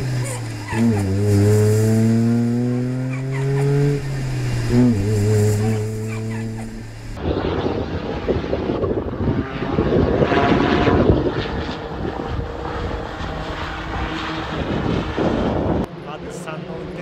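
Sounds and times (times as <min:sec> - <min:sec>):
race car engine passing: 0:00.0 - 0:08.4.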